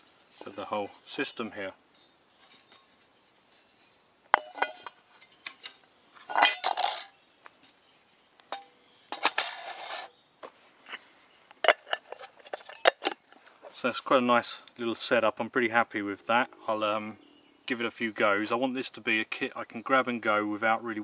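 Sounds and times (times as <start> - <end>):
metal stove parts rattling: 3.6 - 7.1, 8.5 - 10.1, 11.6 - 13.3.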